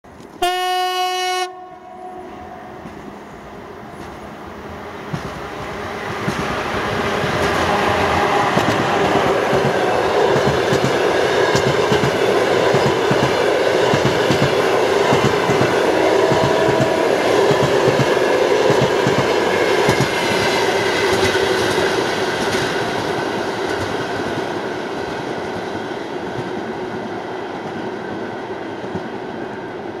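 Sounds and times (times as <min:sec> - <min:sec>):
train rumble: 0:01.8 - 0:30.0
train wheels clattering over rail joints: 0:05.1 - 0:24.4.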